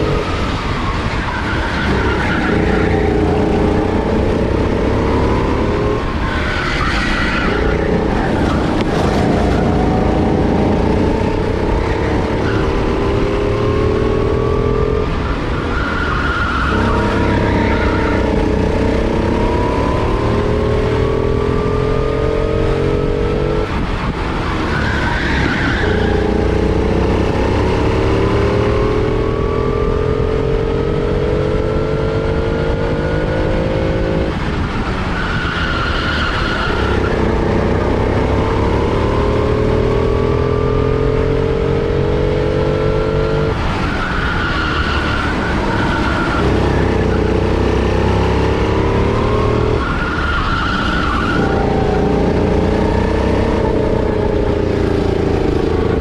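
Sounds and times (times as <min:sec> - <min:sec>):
kart engine revving: 0:00.0 - 0:56.0
tyres squealing: 0:05.7 - 0:12.8.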